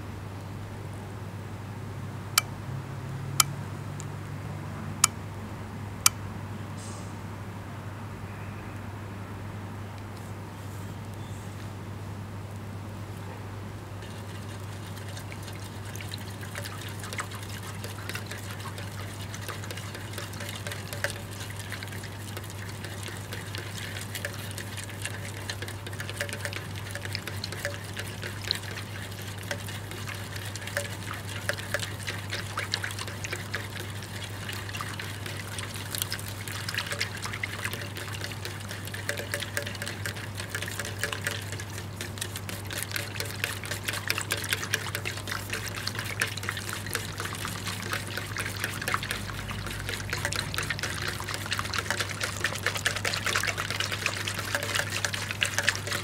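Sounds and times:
soap foam bubbles popping: 15.2s - 56.0s.

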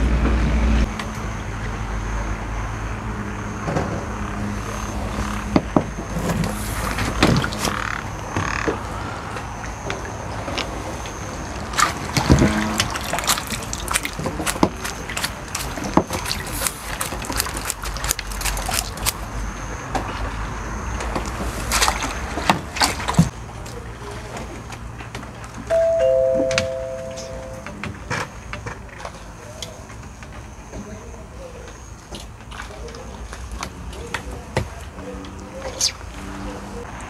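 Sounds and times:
frogs croaking: 1.2s - 23.4s.

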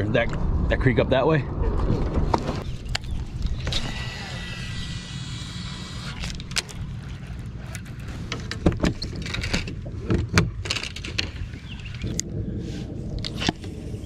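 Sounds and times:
low rumble: 0.0s - 10.6s.

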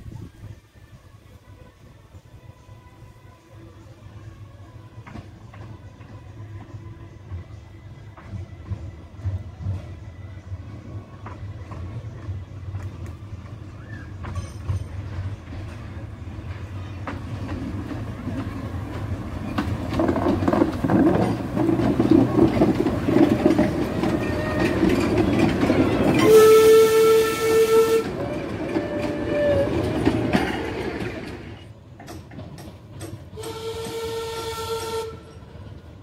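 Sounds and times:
steam locomotive running past: 0.0s - 36.0s
train whistle: 26.1s - 30.1s, 33.4s - 35.7s.

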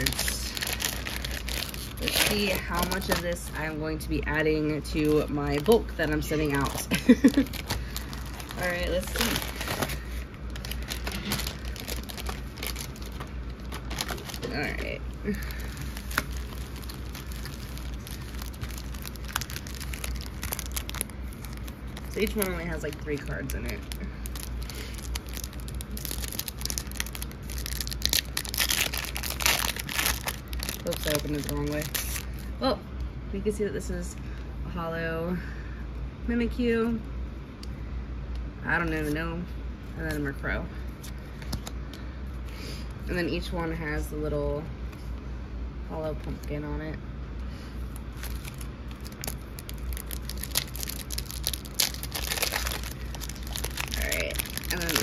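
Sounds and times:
foil wrapper crinkling and tearing: 0.0s - 3.8s, 4.8s - 32.5s, 47.9s - 55.0s.

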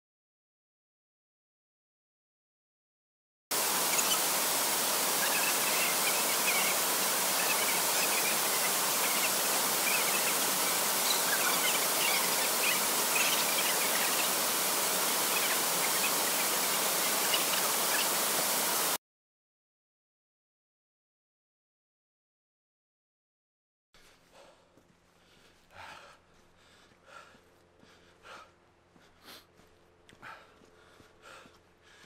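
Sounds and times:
waterfall rushing: 3.5s - 19.0s.

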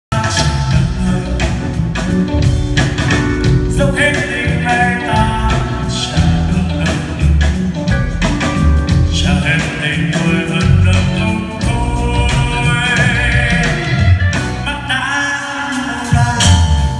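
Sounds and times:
man singing: 0.1s - 2.1s, 3.4s - 16.9s
live band playing pop: 0.1s - 16.9s.

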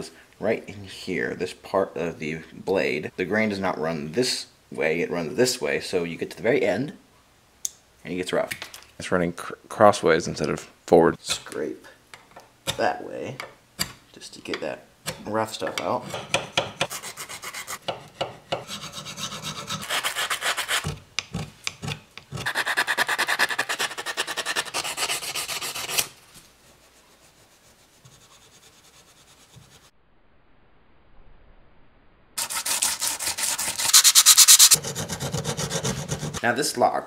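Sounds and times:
hand file rasping on steel: 15.8s - 21.0s, 21.7s - 26.1s, 32.4s - 36.4s
sandpaper rubbing on metal: 16.8s - 17.8s, 18.6s - 20.9s, 22.4s - 29.9s, 32.4s - 36.4s
steel wool rubbing: 32.4s - 36.4s.

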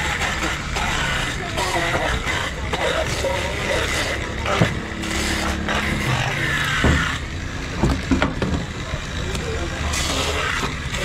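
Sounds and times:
background voices: 0.0s - 7.0s
vehicle engine running: 0.0s - 11.0s.

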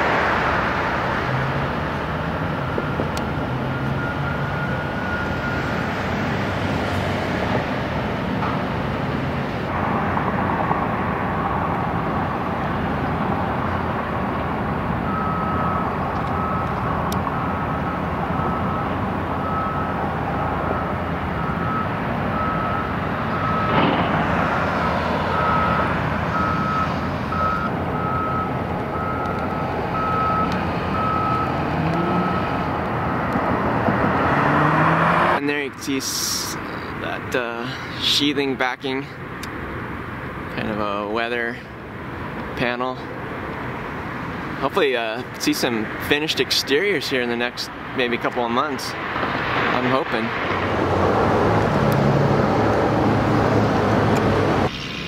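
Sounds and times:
traffic and engine noise: 0.0s - 55.0s
reversing alarm beeping: 2.6s - 5.8s, 15.1s - 23.8s, 24.8s - 33.2s.

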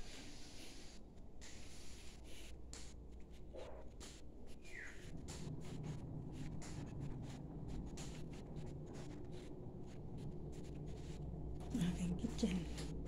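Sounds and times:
low steady hum: 5.1s - 13.0s.

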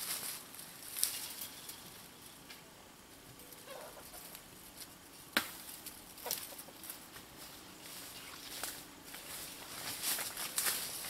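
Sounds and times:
chickens clucking: 3.2s - 4.8s, 6.1s - 7.2s.

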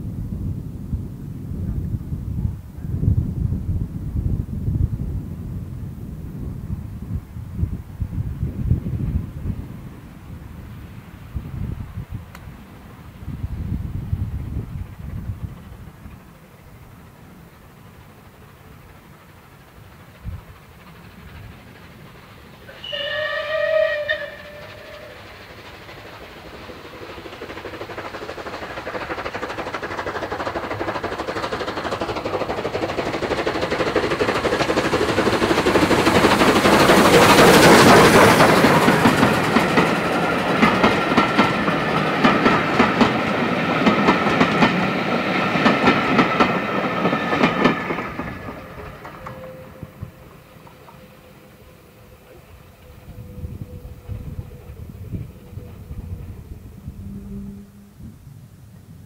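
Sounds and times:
steam locomotive passing: 0.0s - 59.0s
wheels clacking over rail joints: 14.6s - 57.9s
steam whistle: 22.7s - 25.4s, 48.5s - 58.3s.

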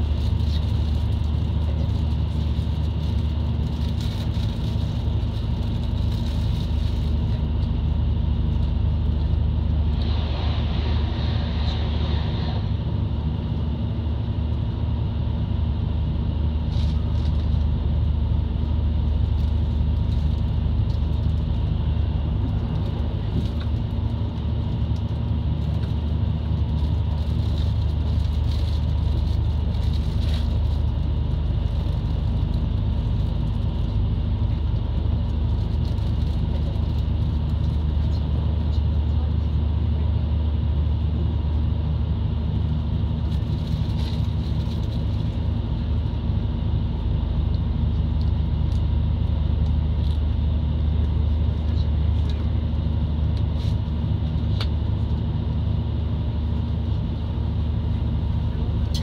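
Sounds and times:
diesel railcar engine drone: 0.0s - 59.0s
rush of noise: 9.6s - 15.0s.

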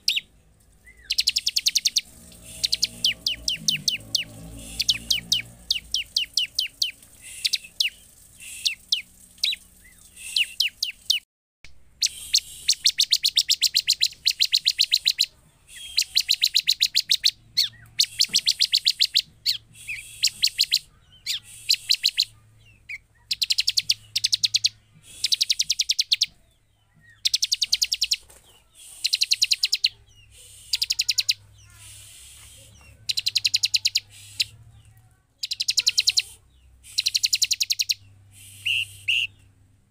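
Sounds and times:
bird calling rapid high notes: 0.0s - 11.2s, 12.0s - 22.4s, 35.4s - 39.4s.

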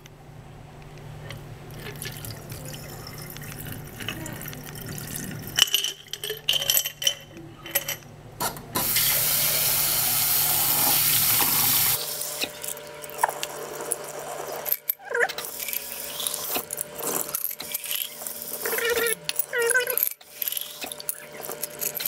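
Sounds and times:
metal nuts clinking against glass: 1.8s - 8.1s
water poured into sink drain: 8.8s - 12.4s.

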